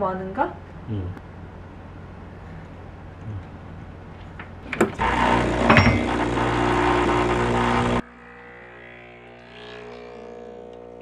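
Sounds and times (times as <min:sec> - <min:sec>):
espresso machine pump buzzing: 0:04.7 - 0:11.0
portafilter knocking into machine: 0:05.6 - 0:06.2.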